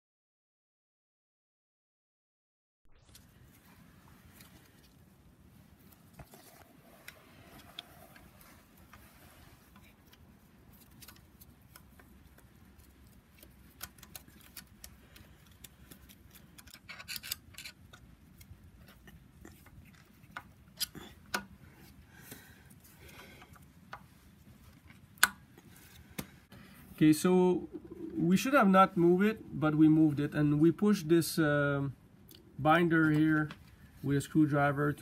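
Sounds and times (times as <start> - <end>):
tools clicking on metal: 13.7 - 18.0.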